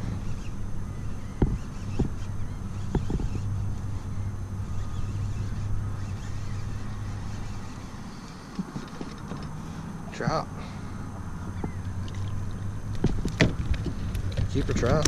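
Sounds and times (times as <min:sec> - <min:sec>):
steady low hum: 0:00.0 - 0:15.0
sharp knocks: 0:01.4 - 0:02.2.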